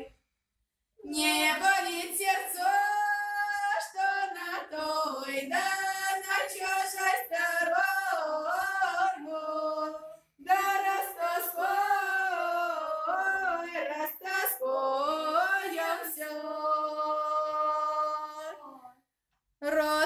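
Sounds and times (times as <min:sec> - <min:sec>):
women singing a cappella: 0:01.0 - 0:19.0, 0:19.6 - 0:20.0.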